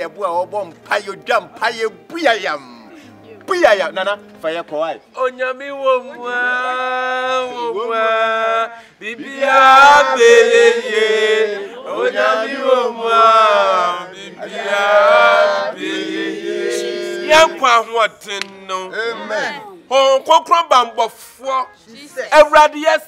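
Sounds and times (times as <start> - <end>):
man's voice holding long notes: 0.0 - 6.9
group singing a chant: 6.2 - 19.5.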